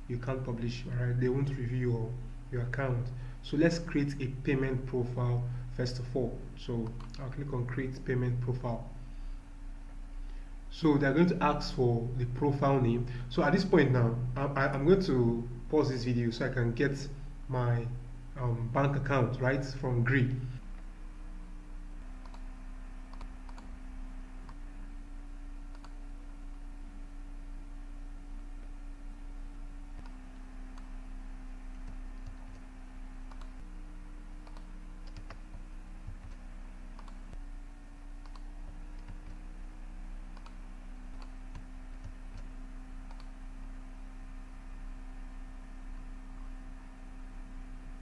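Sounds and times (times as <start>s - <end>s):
low electrical hum: 0.0s - 48.0s
mouse clicks: 6.8s - 7.2s, 23.1s - 23.7s, 25.7s - 26.0s, 37.0s - 37.3s, 38.2s - 39.4s, 40.4s - 40.6s, 43.1s - 43.3s
keyboard keystrokes: 34.4s - 35.4s.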